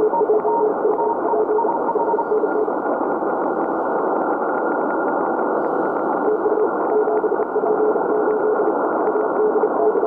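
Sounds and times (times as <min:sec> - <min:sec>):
morse code tone: 0:00.0 - 0:02.7
radio band noise hissing: 0:00.0 - 0:10.0.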